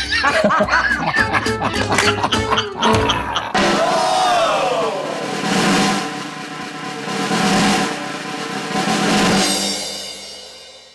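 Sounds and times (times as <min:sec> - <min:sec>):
theme music with held notes: 0:00.0 - 0:10.3
snare drum rolls: 0:03.6 - 0:10.2.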